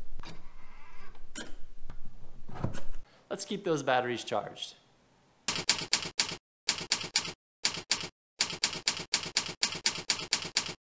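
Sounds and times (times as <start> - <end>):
typewriter keys clacking: 5.5 - 10.8.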